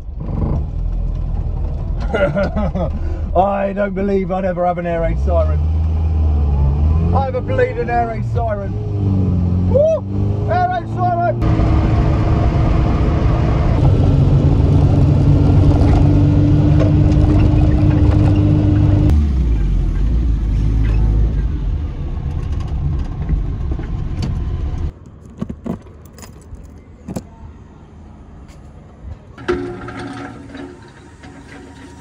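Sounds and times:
road noise: 0.0s - 32.0s
car engine running: 6.8s - 26.2s
clicks and knocks: 24.9s - 27.3s.

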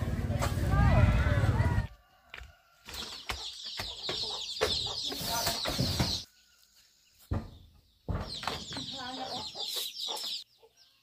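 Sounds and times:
chickens clucking: 2.9s - 11.0s
chicks cheeping: 2.9s - 11.0s.

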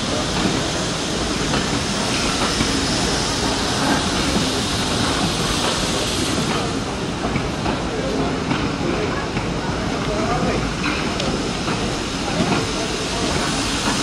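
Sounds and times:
hiss of steam: 0.0s - 14.0s
train wheels on rails: 0.0s - 14.0s.

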